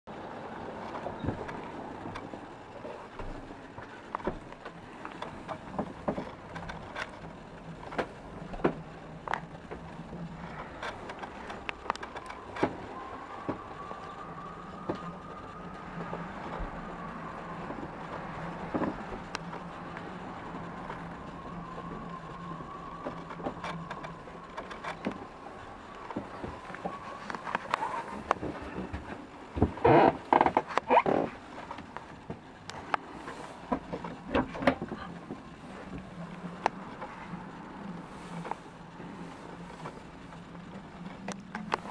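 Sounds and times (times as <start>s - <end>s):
faint steady whine: 0.1s - 41.9s
steady low hum: 0.1s - 41.9s
clicks and knocks of handling: 0.8s - 16.7s, 20.8s - 37.2s.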